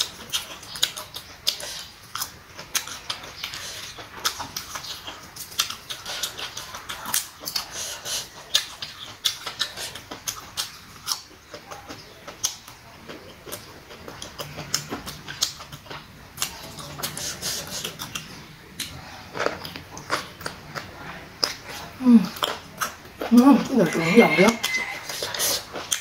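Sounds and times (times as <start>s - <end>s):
person chewing crunchy food: 0.0s - 26.0s
wet mouth clicks and smacks: 25.1s - 26.0s.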